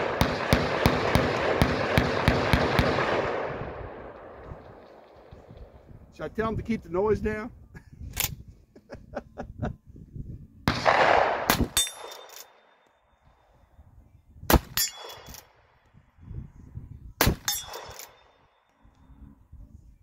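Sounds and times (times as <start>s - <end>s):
rifle shots: 0.0s - 5.9s, 10.7s - 12.8s, 14.5s - 15.5s, 17.2s - 18.4s
rifle lever metallic clicks: 8.1s - 8.4s, 11.8s - 12.6s
steel target clang: 10.8s - 12.7s, 14.6s - 15.5s, 17.2s - 18.4s.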